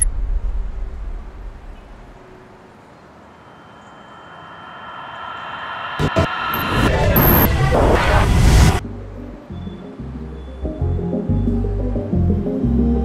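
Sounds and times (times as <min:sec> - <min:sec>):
low rumble: 0:00.0 - 0:02.3, 0:03.8 - 0:09.5
sharp hit: 0:03.5 - 0:08.8.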